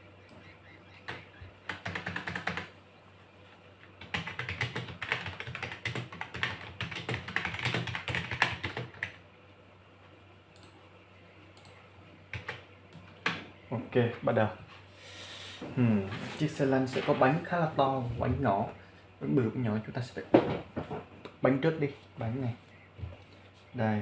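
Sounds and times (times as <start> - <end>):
typing on a keyboard: 1.1 - 2.7, 4.0 - 9.2, 12.3 - 12.6.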